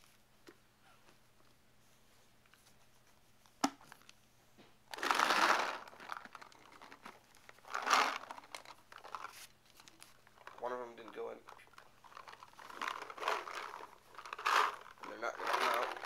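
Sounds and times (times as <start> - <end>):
paintballs rattling into loader: 4.9 - 7.0, 10.4 - 16.0.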